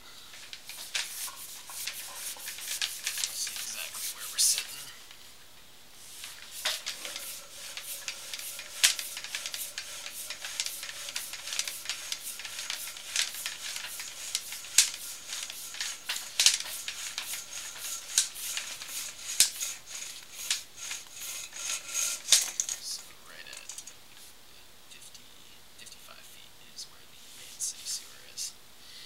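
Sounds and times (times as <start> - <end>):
cable clattering in a pipe: 0.3 - 5.2, 6.2 - 24.0.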